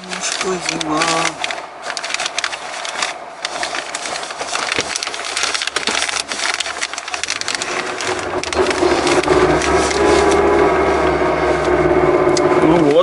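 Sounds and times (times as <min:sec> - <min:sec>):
plastic wrapping crackling: 0:00.0 - 0:11.7
low hum: 0:06.4 - 0:13.0.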